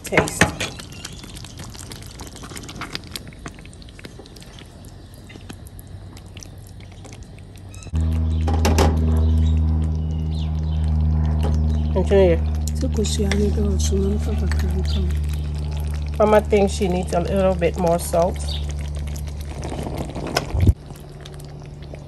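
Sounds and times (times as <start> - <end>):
loud steady low hum: 7.8 - 22.0.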